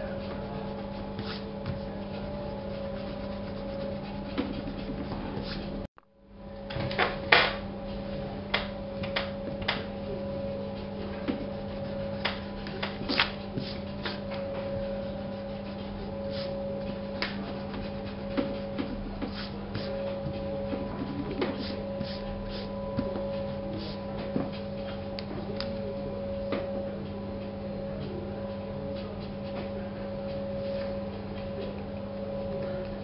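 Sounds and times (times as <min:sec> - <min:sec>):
scratchy drawing strokes: 0:00.0 - 0:05.9, 0:09.4 - 0:25.0
steady electrical hum: 0:00.0 - 0:33.0.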